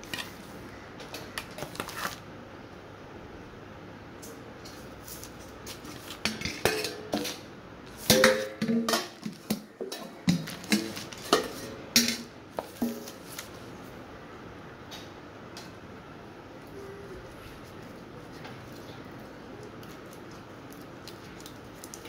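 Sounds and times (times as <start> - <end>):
steel bowls clinking: 6.2 - 7.4.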